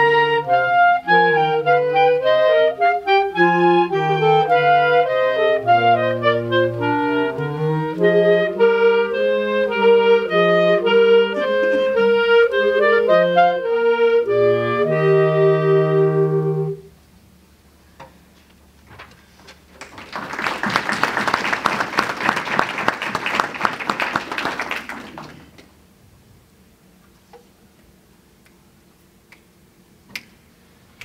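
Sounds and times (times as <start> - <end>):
clarinet ensemble playing: 0.0 - 16.9.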